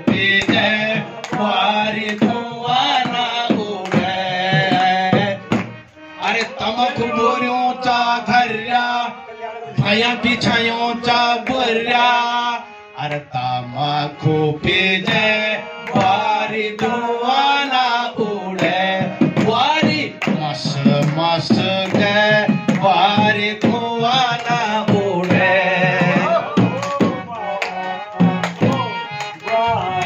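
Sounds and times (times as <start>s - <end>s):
harmonium playing folk tune: 0.0s - 30.0s
men singing: 0.0s - 30.0s
hand drum beats: 18.6s - 27.3s, 28.2s - 28.9s.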